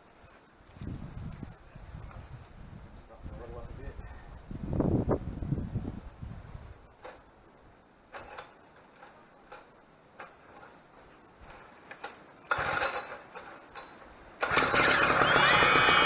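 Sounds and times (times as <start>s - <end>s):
pull starter: 12.5s - 16.0s
two-stroke engine running: 14.4s - 16.0s.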